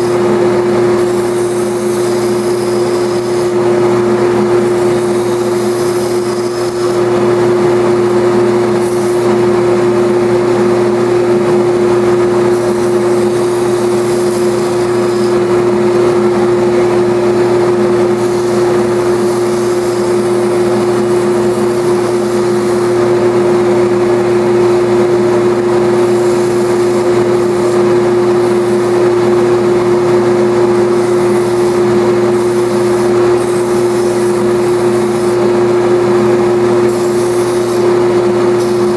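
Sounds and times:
wood being sanded on belt: 0.0s - 7.3s, 8.4s - 9.6s, 12.3s - 15.5s, 17.8s - 23.4s, 25.6s - 38.9s
belt sander humming: 0.0s - 38.9s.

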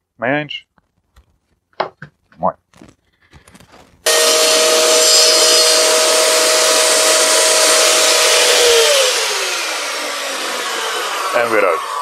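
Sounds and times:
table saw whining: 4.0s - 12.0s.

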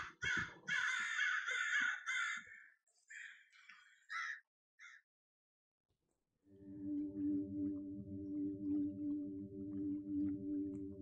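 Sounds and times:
crows cawing: 0.0s - 5.0s.

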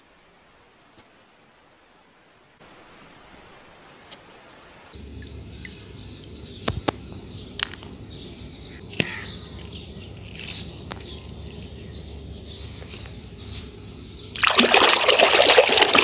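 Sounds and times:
faint hiss: 0.0s - 6.2s
outdoor background noise: 0.0s - 16.0s.

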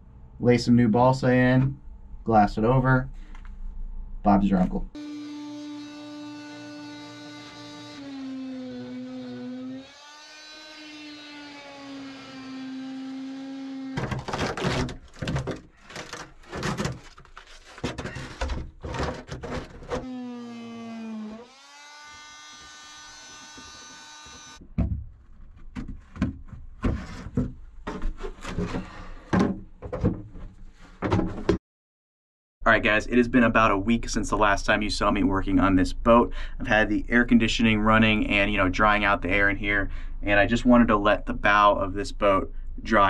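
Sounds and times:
oscillating multi-tool whining: 5.0s - 14.0s, 20.0s - 24.6s
short knocks and scrapes: 14.0s - 20.1s, 24.8s - 31.6s.

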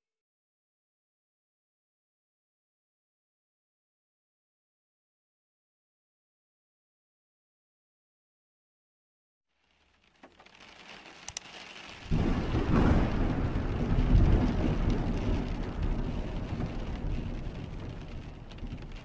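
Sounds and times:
rain-like hiss: 9.5s - 19.0s
sharp clicks: 11.2s - 11.5s
deep thunder-like rumble: 12.1s - 19.0s.

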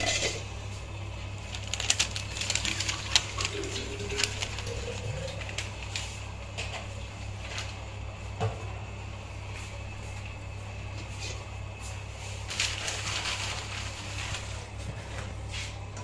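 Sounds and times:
low steady hum: 0.0s - 16.0s
newspaper crinkling and rustling: 1.4s - 6.3s, 12.2s - 14.9s.

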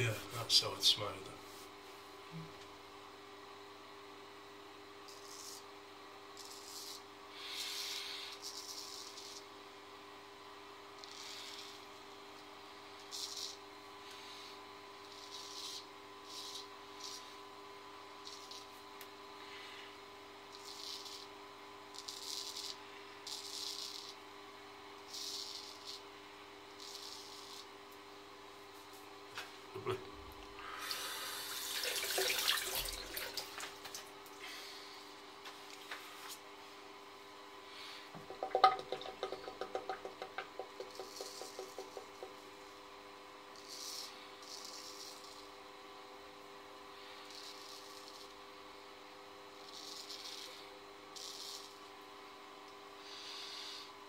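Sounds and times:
steady low hum: 0.0s - 54.0s
razor scrapes: 5.1s - 5.7s, 6.3s - 9.5s, 11.0s - 11.9s, 13.0s - 17.4s, 18.2s - 18.8s, 20.5s - 24.3s, 25.0s - 27.9s, 43.5s - 45.6s, 47.0s - 48.4s, 49.6s - 51.9s
razor scraping stubble: 7.6s - 9.5s, 15.0s - 17.4s, 18.2s - 18.8s, 20.5s - 21.3s, 21.9s - 24.2s, 25.0s - 26.1s, 26.7s - 27.8s, 49.6s - 50.6s.

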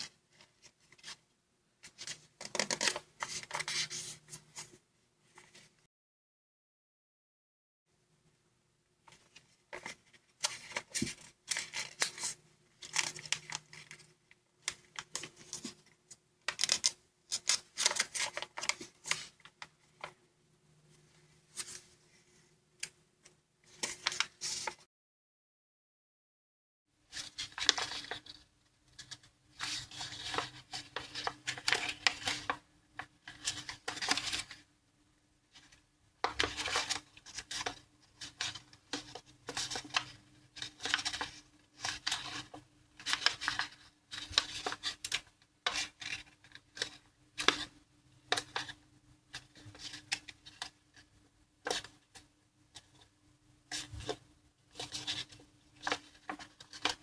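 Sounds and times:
paper crinkling and rustling: 0.0s - 5.8s, 9.1s - 20.2s, 23.6s - 24.9s, 27.1s - 34.7s, 35.5s - 47.7s, 53.7s - 57.0s.

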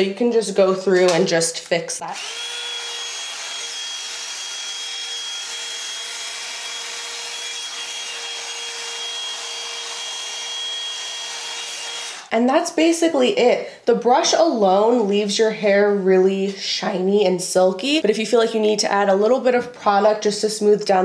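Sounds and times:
hot-air brush dryer whirring: 2.1s - 12.3s.

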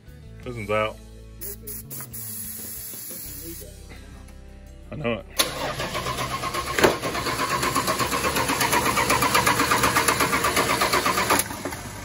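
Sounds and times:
engine starter cranking: 5.4s - 12.0s.

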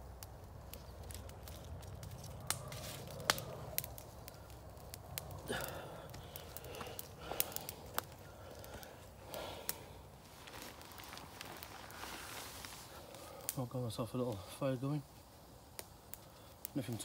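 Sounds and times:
dry grass crackling: 0.0s - 17.0s
grass bundle rustling: 5.0s - 13.5s.

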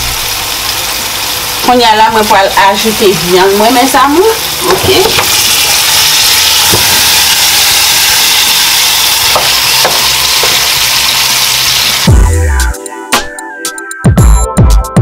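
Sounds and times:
pork sizzling in hot fat: 0.0s - 12.2s
electronic music: 12.0s - 15.0s.

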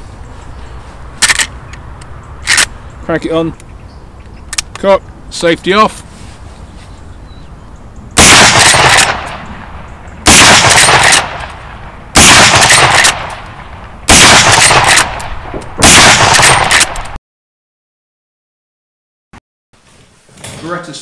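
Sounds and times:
rifle shots: 8.2s - 17.2s.

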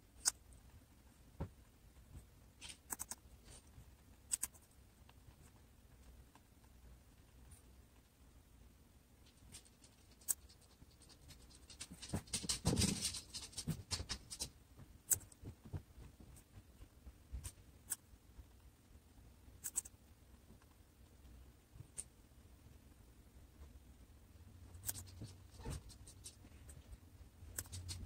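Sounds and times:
guinea pig crunching carrot: 4.2s - 4.7s.

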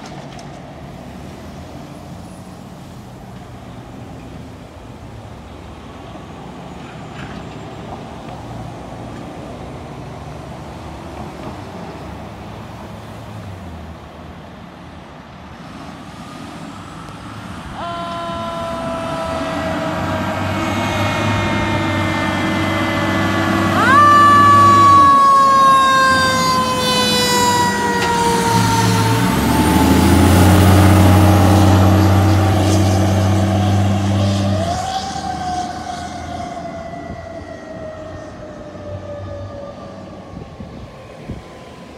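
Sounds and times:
diesel engine rumbling: 0.0s - 39.0s
air horn blasts: 17.8s - 29.4s
siren wailing: 17.8s - 32.8s, 34.2s - 40.8s.

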